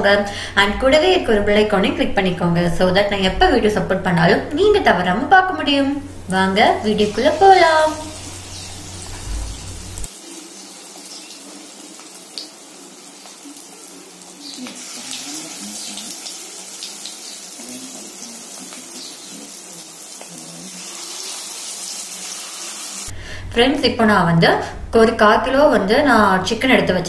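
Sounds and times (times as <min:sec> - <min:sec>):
hot oil sizzling and bubbling: 0:06.0 - 0:23.1.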